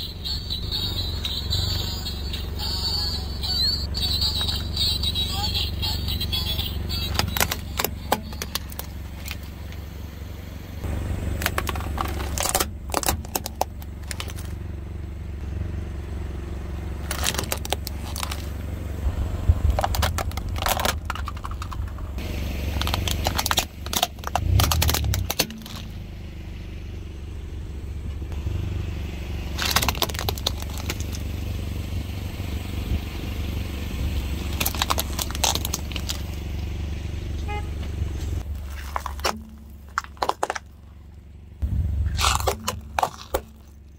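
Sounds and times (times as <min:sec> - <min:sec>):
car engine running: 0:00.0 - 0:43.9
plastic toys cracking under tyre: 0:06.5 - 0:09.6, 0:11.3 - 0:14.6, 0:17.0 - 0:18.6, 0:19.5 - 0:25.9, 0:29.5 - 0:31.3, 0:34.4 - 0:36.4, 0:38.4 - 0:41.0, 0:42.1 - 0:43.9.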